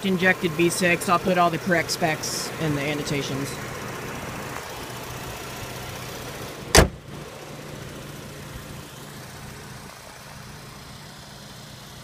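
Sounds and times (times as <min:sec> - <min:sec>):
car engine idling: 0:00.0 - 0:12.0
car hood slamming shut: 0:06.7 - 0:07.1.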